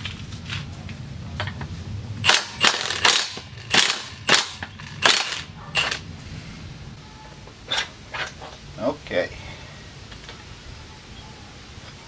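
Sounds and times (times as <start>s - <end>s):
impact wrench hammering: 2.2s - 6.0s.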